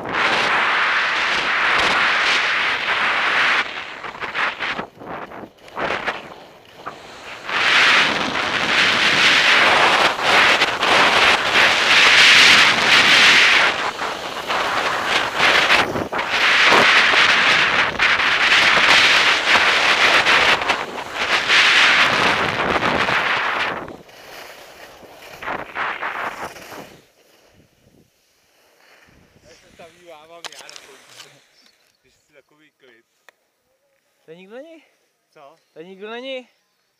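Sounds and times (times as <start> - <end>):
wind rushing over microphone: 0.0 - 28.1
skis scraping over snow: 0.0 - 32.2.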